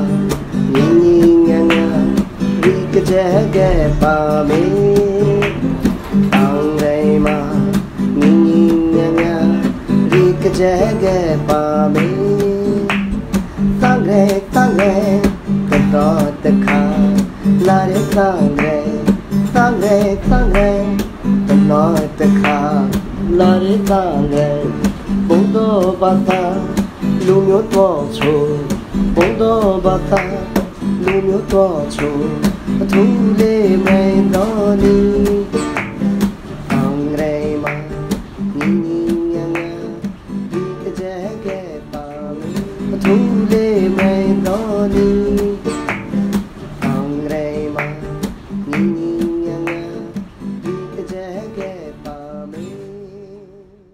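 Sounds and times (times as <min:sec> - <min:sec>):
acoustic guitar music: 0:00.0 - 0:53.9.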